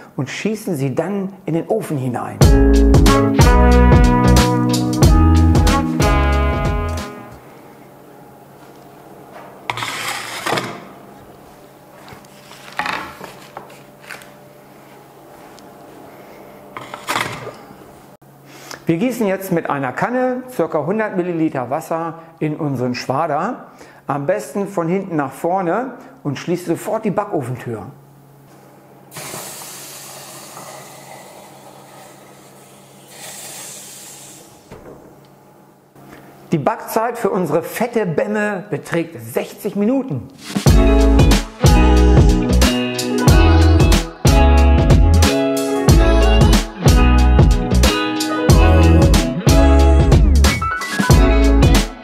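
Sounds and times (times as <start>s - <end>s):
bread peel scraping on stone: 9.7s - 10.7s.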